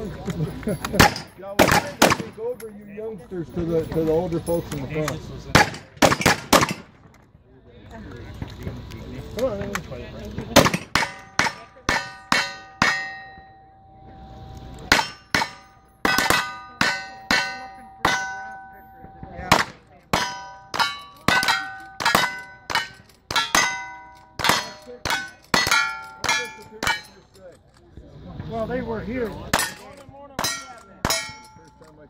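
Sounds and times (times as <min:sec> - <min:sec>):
steel target clanging: 0:00.8 - 0:02.7, 0:10.6 - 0:27.5, 0:29.4 - 0:32.0
gunshots: 0:01.0 - 0:02.4, 0:05.6 - 0:07.0, 0:10.6 - 0:13.0, 0:19.5 - 0:23.8.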